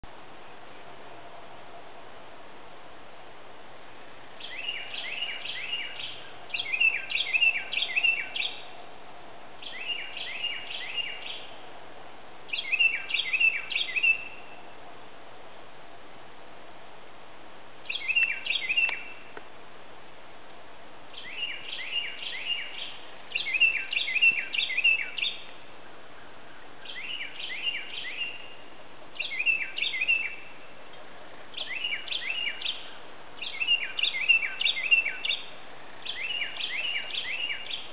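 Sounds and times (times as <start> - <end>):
bird whistling song: 4.4 - 8.7, 9.6 - 11.5, 12.5 - 14.4, 17.8 - 19.3, 21.1 - 25.6, 26.8 - 28.6, 29.2 - 30.5, 31.5 - 37.9.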